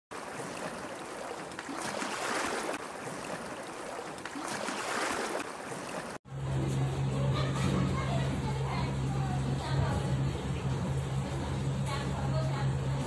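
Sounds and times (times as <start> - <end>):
waves washing onto shore: 0.1 - 6.2.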